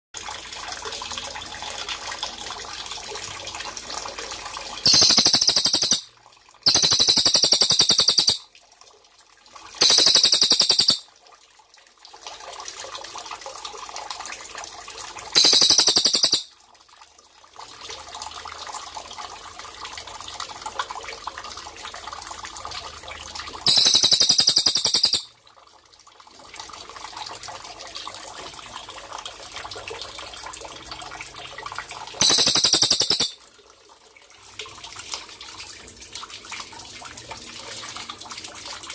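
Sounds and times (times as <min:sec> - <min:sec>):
trickle of running water: 0:00.2 - 0:38.9
bird giving high rapid trills: 0:04.9 - 0:06.1, 0:06.7 - 0:08.4, 0:09.8 - 0:11.1, 0:15.4 - 0:16.5, 0:23.7 - 0:25.3, 0:32.2 - 0:33.4.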